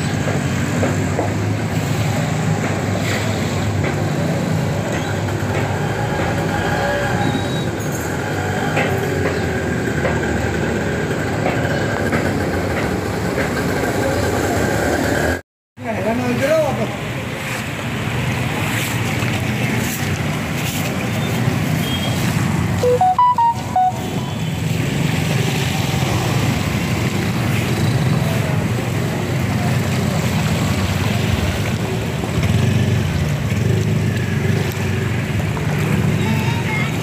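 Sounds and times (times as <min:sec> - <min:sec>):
motorbike and scooter traffic: 0:00.0 - 0:37.0
electronic beeping tune: 0:22.8 - 0:24.4.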